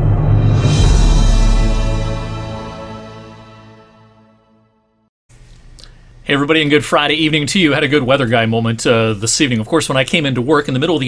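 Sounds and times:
intro theme music: 0.0s - 5.0s.

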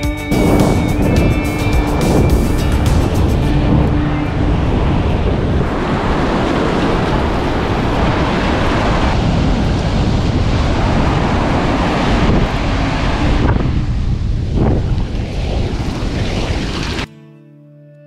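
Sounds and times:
ocean surf breaking: 0.0s - 17.1s
wind buffeting microphone: 0.0s - 17.1s.

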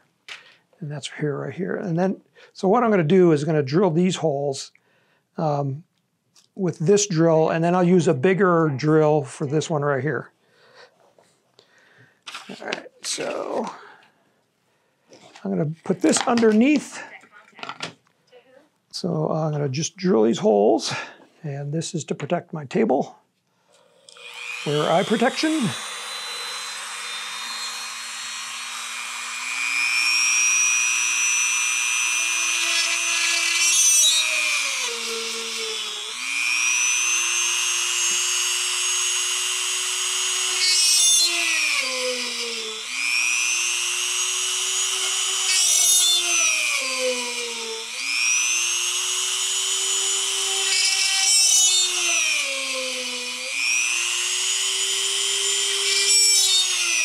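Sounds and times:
drill bit rasping through wood: 23.8s - 57.0s
rotary tool motor whine: 23.8s - 57.0s.

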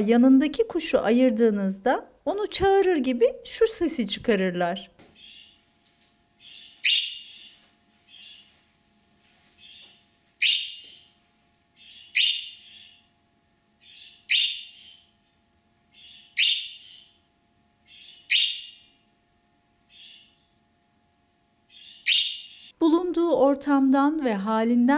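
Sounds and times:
budgerigar chirping: 5.2s - 5.6s, 6.4s - 8.5s, 9.6s - 11.1s, 11.8s - 13.1s, 13.8s - 15.1s, 15.9s - 17.2s, 17.8s - 19.0s, 19.9s - 20.6s, 21.7s - 22.7s.

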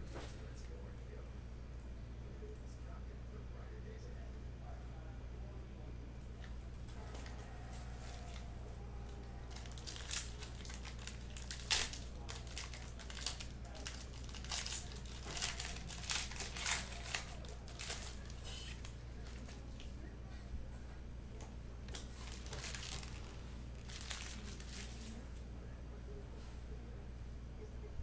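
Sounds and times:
plastic and foil crinkling and tearing: 6.8s - 20.0s, 21.8s - 25.3s.

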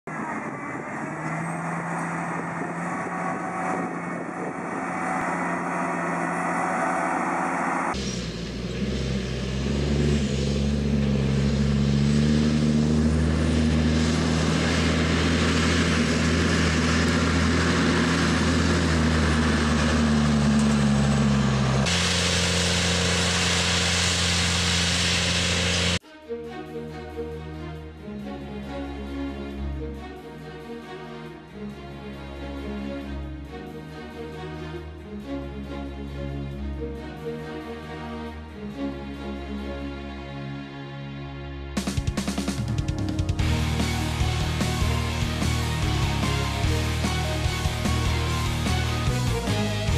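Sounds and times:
diesel farm machines running: 0.1s - 26.0s, 42.1s - 49.9s.

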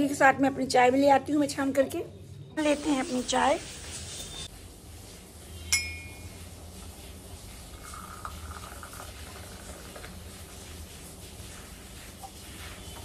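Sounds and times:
tea pouring into mug: 7.7s - 10.6s.

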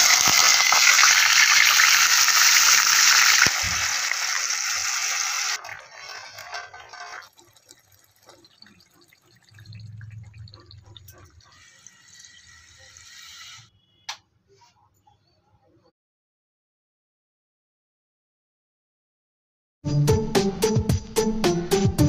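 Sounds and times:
water pouring into metal pot: 0.0s - 13.0s.

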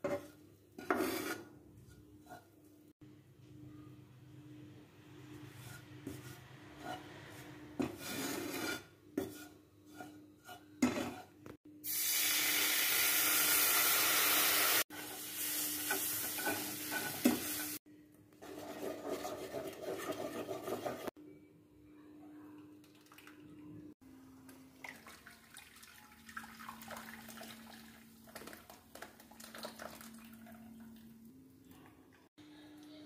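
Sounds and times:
spatula scraping frying pan: 0.0s - 2.6s, 5.3s - 11.4s, 15.9s - 17.8s, 18.4s - 21.2s
food sizzling in oil: 11.8s - 17.8s.

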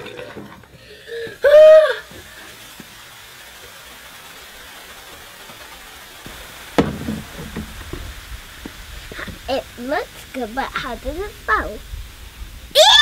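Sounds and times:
foam fizzing hiss: 0.0s - 13.0s
sharp knock: 6.8s - 7.9s.

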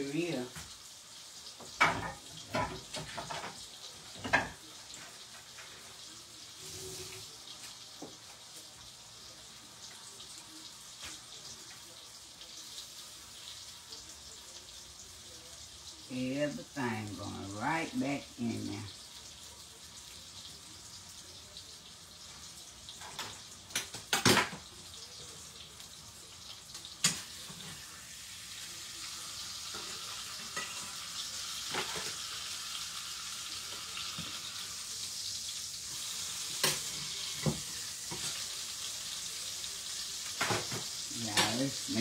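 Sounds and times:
chicken sizzling in a pan: 0.0s - 42.0s
metal utensils clinking on pan: 29.7s - 31.0s.

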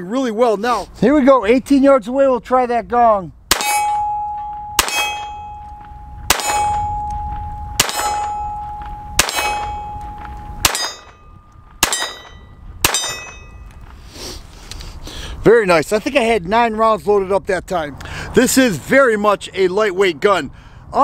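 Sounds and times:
pistol shots: 3.5s - 5.6s, 6.3s - 7.1s, 7.8s - 11.2s, 11.8s - 13.5s
steel gong target ringing: 3.6s - 13.6s.

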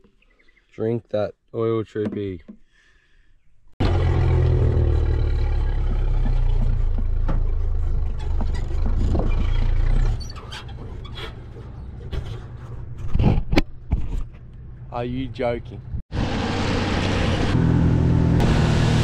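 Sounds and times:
engine running low rumble: 3.8s - 13.0s.

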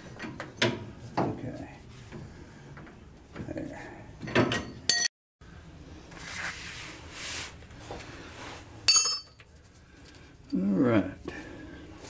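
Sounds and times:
soft scraping and rustling: 6.0s - 8.8s.

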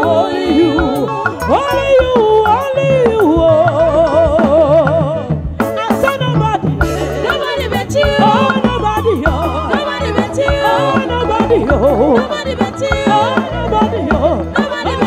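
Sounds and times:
drum kit and bass: 0.0s - 15.0s
women singing: 0.0s - 15.0s.

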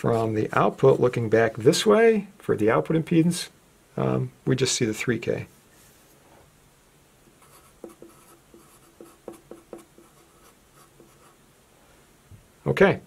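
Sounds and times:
marker pen writing on paper: 7.4s - 11.4s.

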